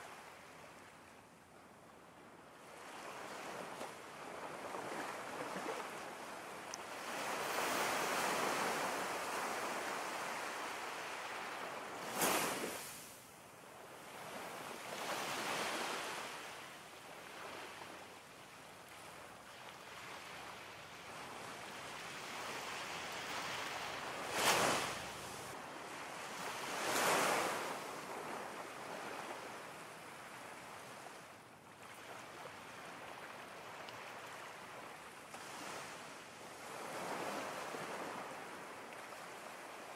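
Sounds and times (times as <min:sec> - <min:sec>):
waves breaking: 0:22.6 - 0:25.5.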